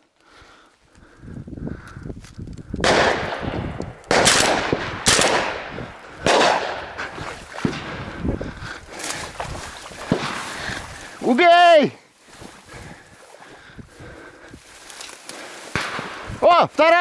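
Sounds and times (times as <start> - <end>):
shotgun shots: 2.8 - 7.0, 15.7 - 16.3.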